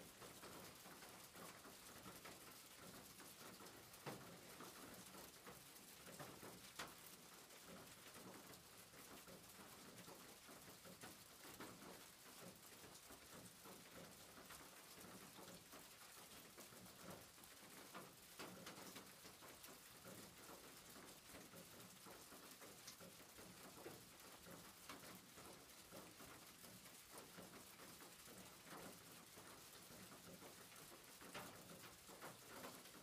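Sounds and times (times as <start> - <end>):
faint background hiss: 0.0 - 33.0
small ticks: 9.2 - 33.0.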